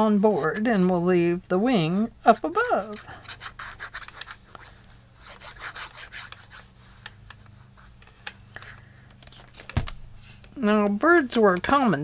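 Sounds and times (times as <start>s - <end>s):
paper handling clicks: 2.9s - 4.8s, 6.1s - 10.6s
glue nozzle scratching paper: 2.9s - 7.2s.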